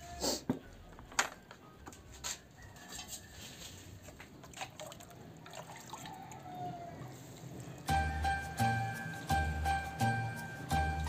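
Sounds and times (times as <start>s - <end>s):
water splashing in bucket: 4.1s - 6.4s.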